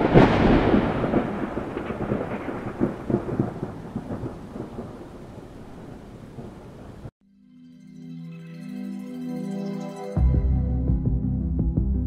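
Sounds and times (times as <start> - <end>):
thunder clap rumbling: 0.0 - 7.1.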